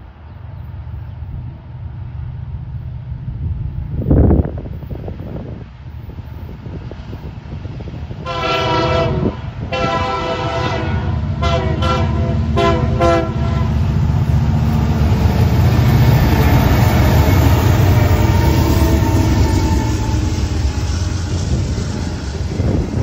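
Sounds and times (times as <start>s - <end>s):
diesel locomotive rumble: 0.0s - 23.0s
locomotive air horn blasts: 8.2s - 14.0s.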